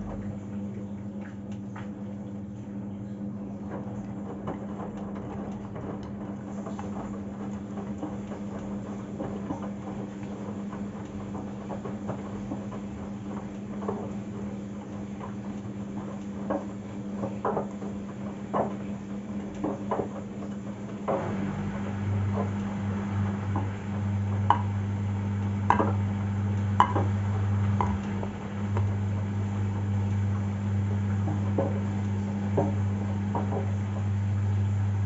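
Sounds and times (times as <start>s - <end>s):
washing machine motor hum: 0.0s - 35.0s
laundry knocking in drum: 16.4s - 34.2s
lower spin hum: 20.9s - 35.0s.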